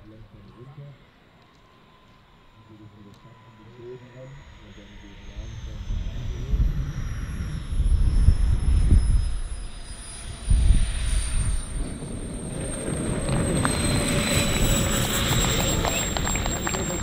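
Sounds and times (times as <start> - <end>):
jet turbines whining: 0.0 - 17.0
low rumble: 4.3 - 17.0.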